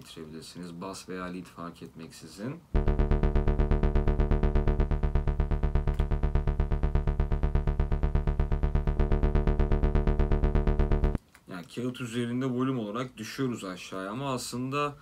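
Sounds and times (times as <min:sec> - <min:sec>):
distorted synth bass pulses: 0:02.8 - 0:11.2.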